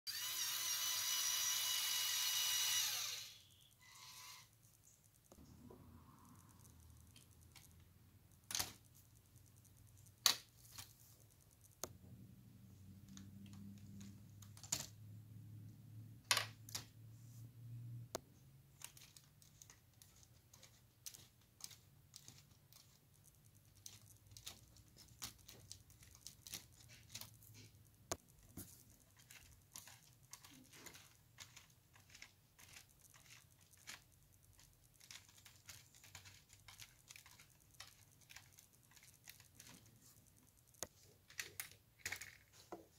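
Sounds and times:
plastic gears clicking: 0.1 - 5.4, 6.3 - 11.9, 13.1 - 15.0, 18.7 - 42.6.

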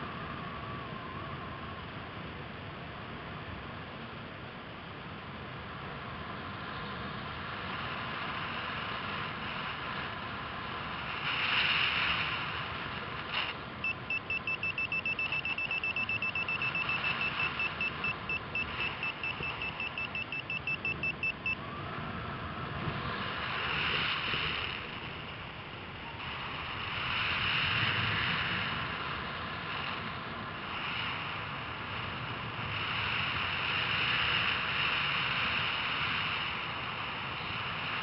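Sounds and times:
wind rush on microphone: 0.0 - 38.0
variometer beeping rapidly: 13.8 - 21.6.

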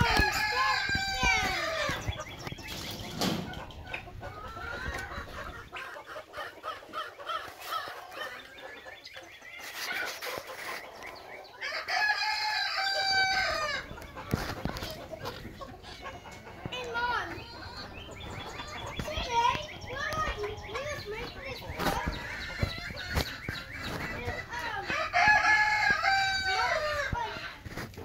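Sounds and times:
chickens clucking: 0.0 - 28.0
rooster crowing: 11.6 - 13.8, 24.9 - 27.0.

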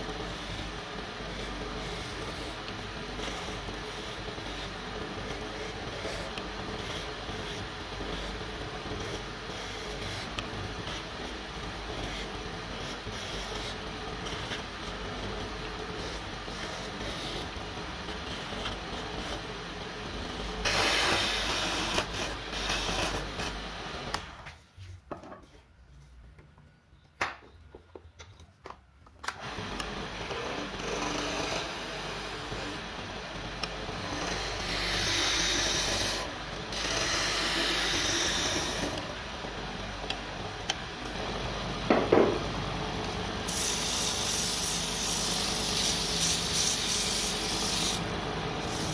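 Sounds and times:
wood lathe running: 29.4 - 41.4, 43.1 - 48.9
sandpaper rubbing on wood: 43.5 - 48.0.

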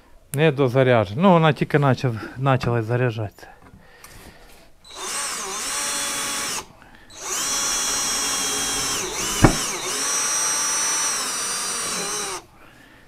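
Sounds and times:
drill motor whining: 4.8 - 12.5.

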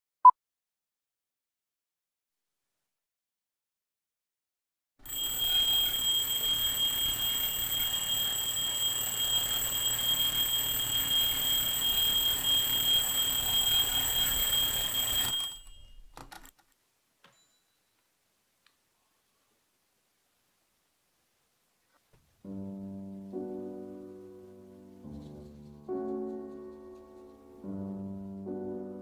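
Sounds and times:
alarm clock ringing: 5.0 - 16.1.

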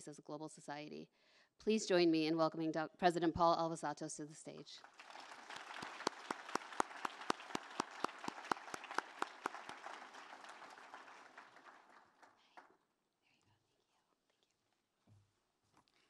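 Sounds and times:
audience applause: 4.8 - 12.6
sharp close hand claps: 4.8 - 12.8.

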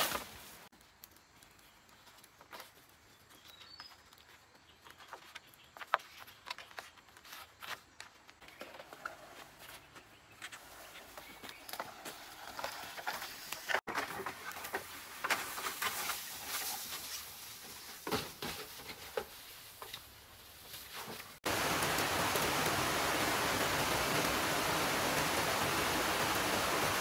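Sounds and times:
river water rushing: 21.5 - 27.0.

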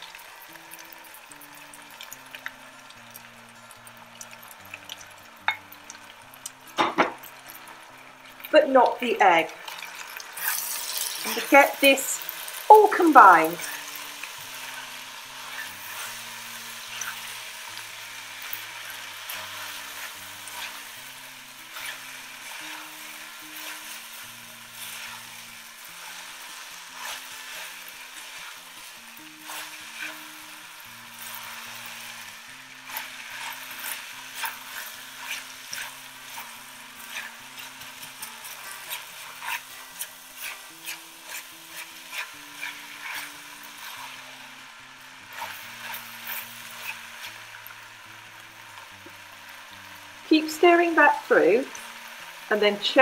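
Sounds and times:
food sizzling in oil: 0.0 - 53.0
spatula scraping pot: 9.7 - 11.8, 18.4 - 24.0, 26.9 - 28.5, 32.8 - 44.2, 45.3 - 47.4.

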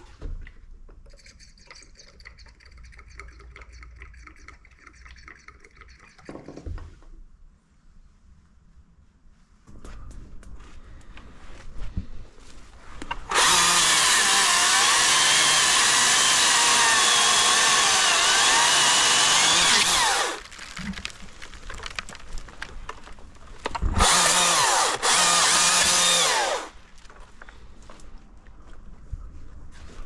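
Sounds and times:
battery chainsaw whining: 13.3 - 20.4, 23.9 - 26.8.

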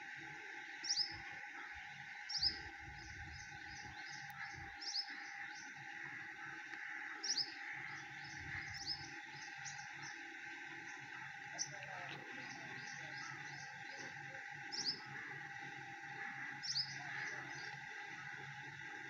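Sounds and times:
steady background hum: 0.0 - 19.0
bird chirping: 7.2 - 10.2, 10.8 - 15.2, 16.5 - 17.9.

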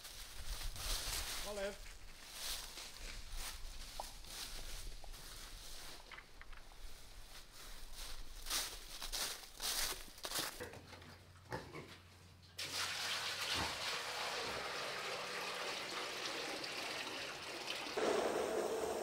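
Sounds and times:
pigs grunting: 10.6 - 12.0, 18.0 - 19.0.

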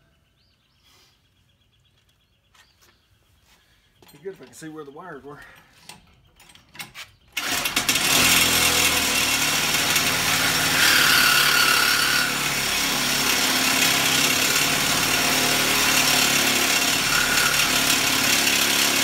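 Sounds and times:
reciprocating saw cutting steel tube: 7.4 - 19.0.

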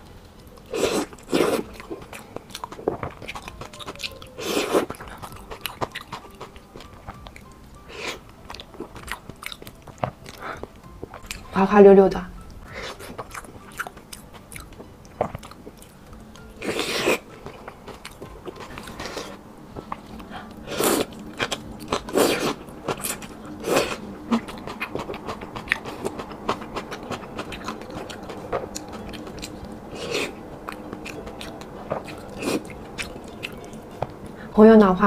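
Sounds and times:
chewing with wet mouth clicks: 0.3 - 11.5, 12.8 - 34.2
slurping: 0.7 - 1.8, 4.4 - 5.0, 16.6 - 17.3, 20.6 - 26.1.

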